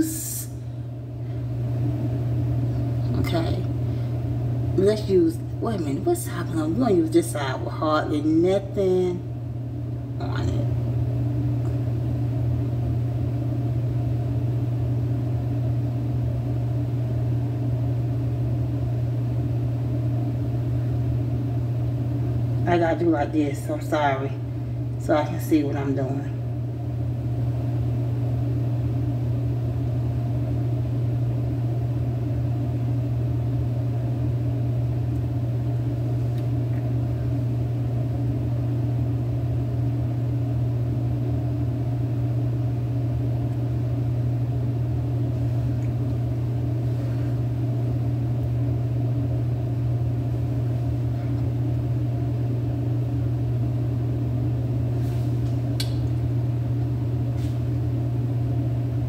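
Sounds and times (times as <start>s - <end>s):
low machine hum: 0.0s - 59.0s.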